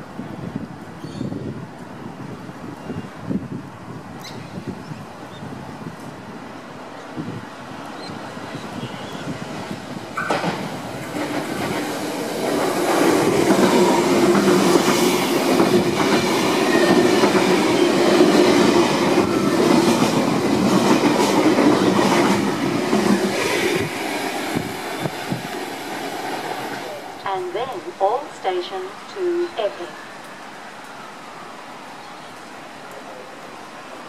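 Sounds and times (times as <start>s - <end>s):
train passing at speed: 0.0s - 34.0s
wheels clattering on rails: 10.1s - 24.0s.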